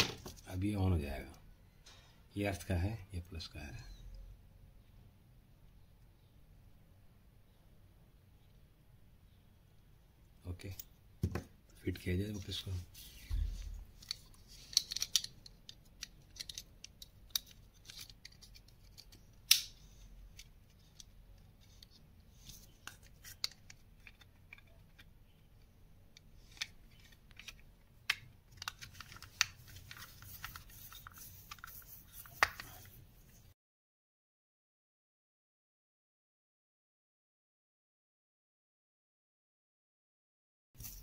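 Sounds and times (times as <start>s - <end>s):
plastic clicks and scrapes: 13.4s - 33.0s
plastic snapping together: 19.0s - 19.8s, 26.5s - 30.0s.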